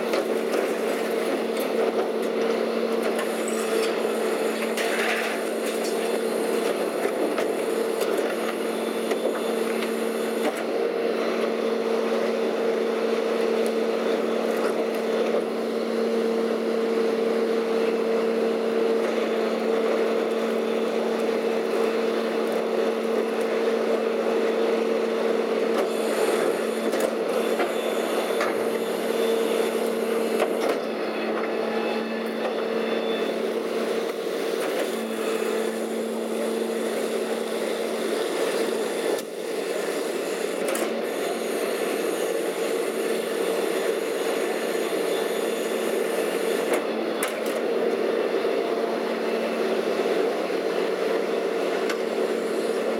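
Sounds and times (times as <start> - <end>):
garbage truck hydraulic hum: 25.6 - 48.3.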